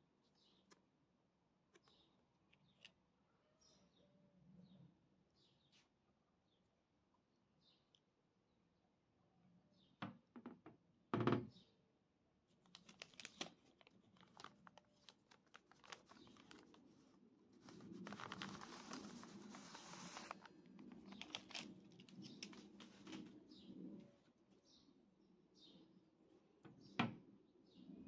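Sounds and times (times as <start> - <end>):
paper crinkling and rustling: 12.6 - 23.4.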